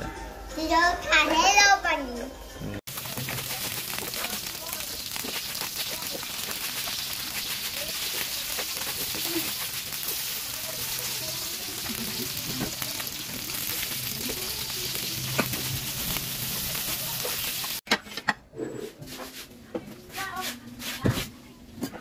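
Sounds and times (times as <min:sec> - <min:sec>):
fish sizzling in a wok: 0:02.9 - 0:17.8.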